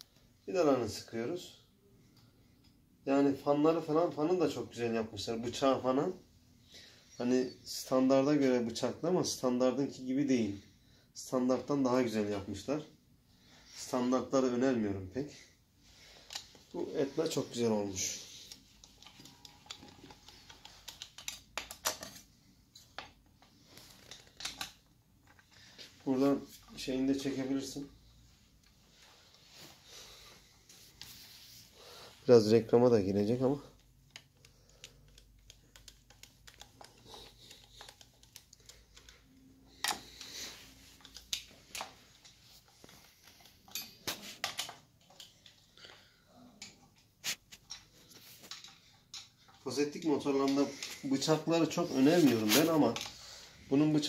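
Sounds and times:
screwdriver clicks and taps: 0:18.8 - 0:22.2, 0:33.8 - 0:39.2.

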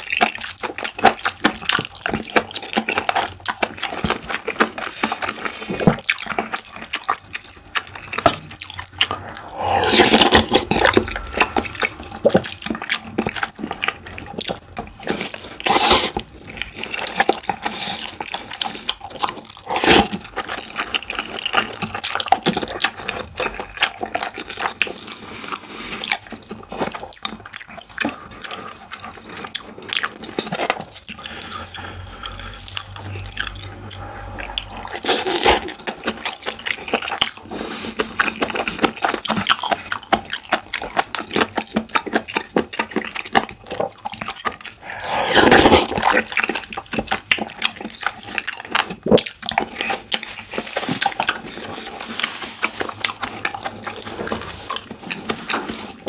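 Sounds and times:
wet chewing and lip smacks: 0:00.0 - 0:56.0
loud slurp: 0:08.5 - 0:12.9, 0:15.6 - 0:16.2, 0:19.5 - 0:20.4, 0:30.1 - 0:38.4, 0:44.6 - 0:46.5.

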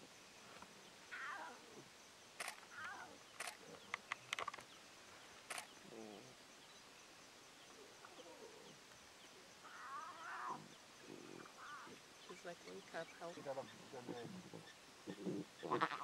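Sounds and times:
lion cubs mewing and squealing: 0:01.1 - 0:04.1, 0:09.6 - 0:12.0, 0:13.6 - 0:16.0.

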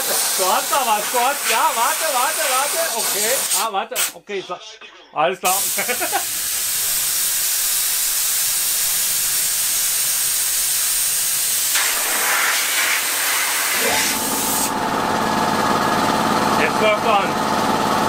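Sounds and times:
air compressor running: 0:00.0 - 0:04.1, 0:05.5 - 0:18.0
compressed air hissing: 0:00.0 - 0:04.2, 0:05.5 - 0:14.7.

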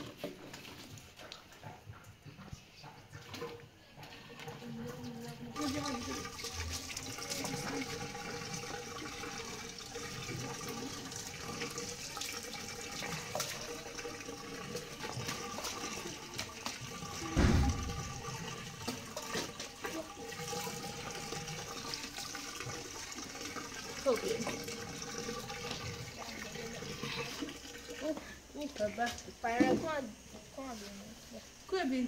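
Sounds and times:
dull thump: 0:17.4 - 0:18.2.

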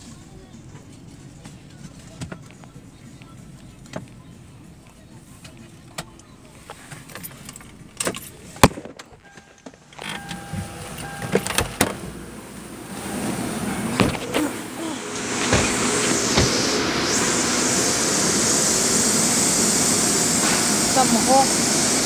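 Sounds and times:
steady rush of noise: 0:10.9 - 0:22.0
clicks and knocks inside car: 0:13.9 - 0:14.6, 0:15.3 - 0:16.8.

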